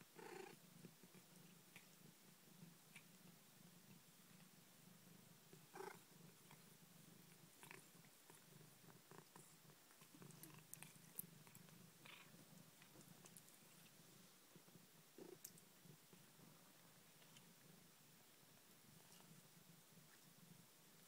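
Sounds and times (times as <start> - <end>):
cat purring: 0.0 - 21.0.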